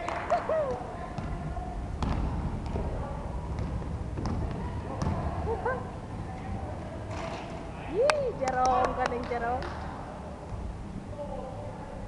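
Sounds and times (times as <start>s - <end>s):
basketball bouncing on wooden floor: 2.0s - 5.3s.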